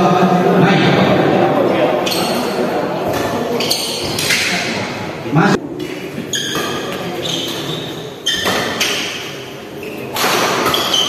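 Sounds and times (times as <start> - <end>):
broad noise: 0.0 - 8.3
shoes squeaking on court: 2.0 - 4.4, 5.8 - 11.0
rackets hitting shuttlecock: 2.0 - 4.8, 5.8 - 11.0.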